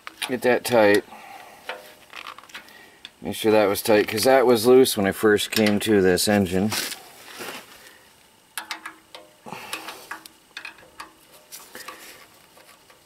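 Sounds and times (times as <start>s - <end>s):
screwdriver clicking on metal: 8.6s - 11.2s.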